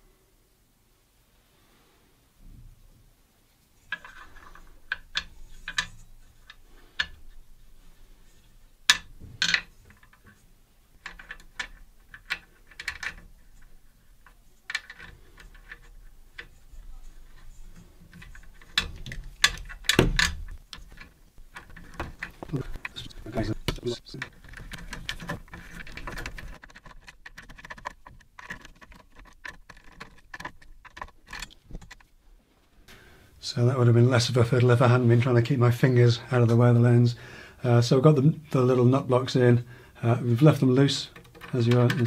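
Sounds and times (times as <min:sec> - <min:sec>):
small metal hardware clicking: 0:11.0 - 0:22.5.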